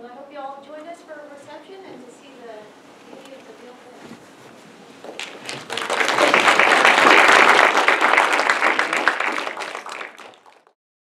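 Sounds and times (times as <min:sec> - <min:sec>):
audience applauding: 0:05.1 - 0:10.8.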